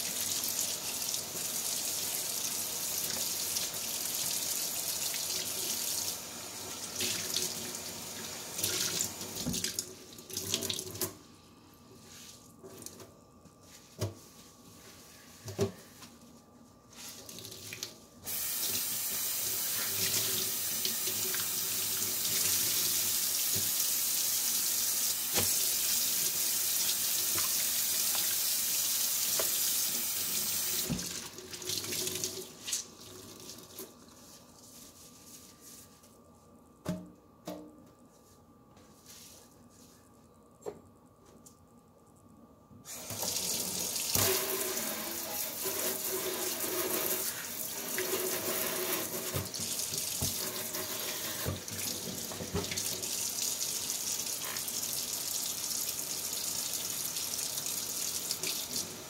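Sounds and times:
faucet running into steel sink: 0:43.0 - 0:59.0.

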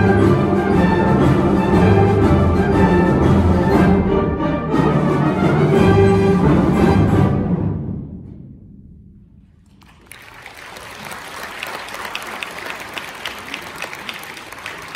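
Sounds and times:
audience applause: 0:09.7 - 0:14.9.

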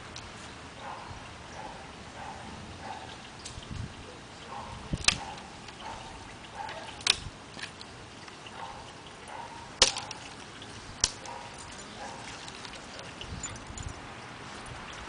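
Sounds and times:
dry twigs snapping: 0:11.0 - 0:11.4.

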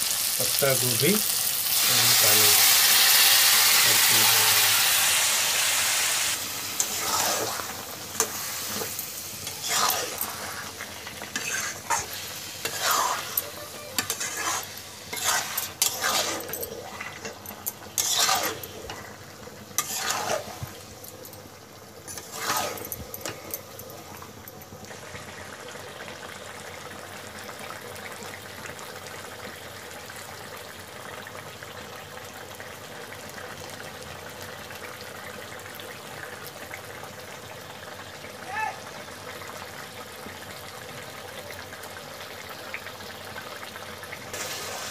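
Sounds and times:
food sizzling: 0:00.0 - 0:44.9
metal spatula scraping a wok: 0:06.8 - 0:17.4, 0:18.0 - 0:19.1, 0:19.8 - 0:20.6, 0:22.1 - 0:23.0.

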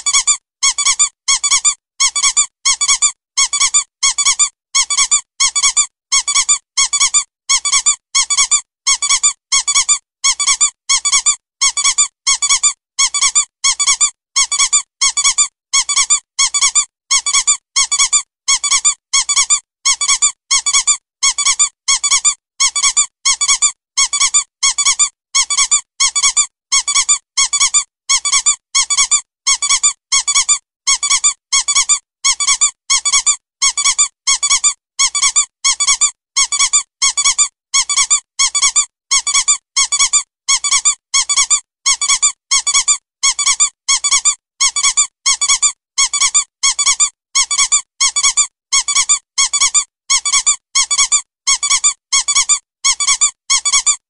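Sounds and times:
squeaky toy squeaking: 0:00.0 - 0:54.0.

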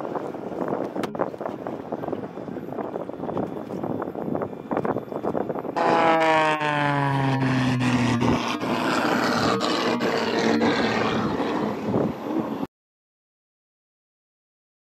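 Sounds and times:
outboard motors roaring: 0:05.8 - 0:12.6
biplane engine passing by: 0:05.8 - 0:12.7.

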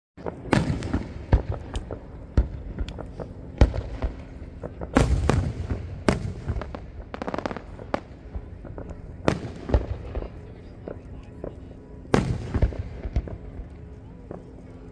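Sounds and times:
fireworks crackling pops: 0:00.2 - 0:10.3
fireworks bangs with echo: 0:00.2 - 0:13.6.

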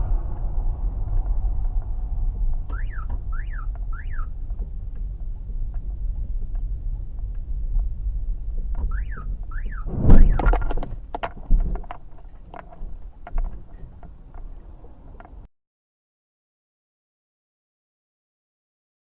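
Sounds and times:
car driving rumble: 0:00.0 - 0:15.5
rising and falling chirps: 0:02.7 - 0:04.3, 0:08.9 - 0:10.4.

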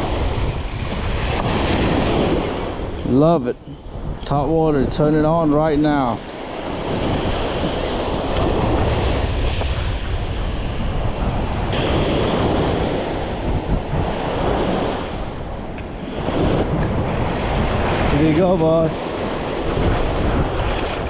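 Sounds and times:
surf breaking on sandy beach: 0:00.0 - 0:21.0
wind buffeting microphone: 0:00.0 - 0:21.0.

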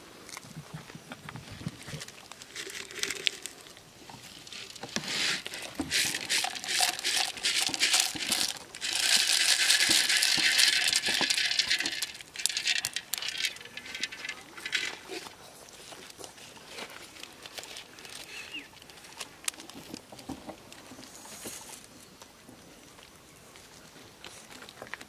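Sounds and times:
snails and water pouring: 0:01.8 - 0:20.2
snail shells clicking: 0:02.0 - 0:15.2.

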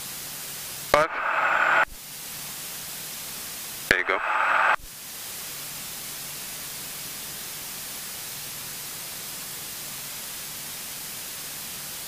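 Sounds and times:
intercom hiss: 0:00.9 - 0:02.0, 0:03.8 - 0:04.9.

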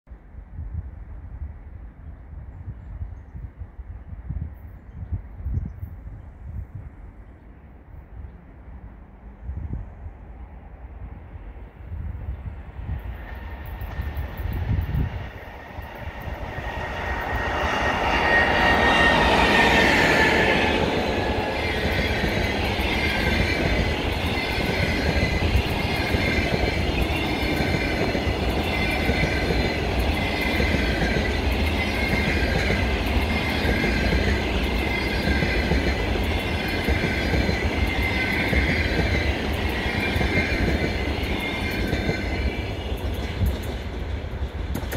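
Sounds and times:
train rumbling by: 0:01.8 - 0:44.9
electric locomotive whine: 0:07.8 - 0:44.9
high squeal from wheels: 0:13.2 - 0:28.0.

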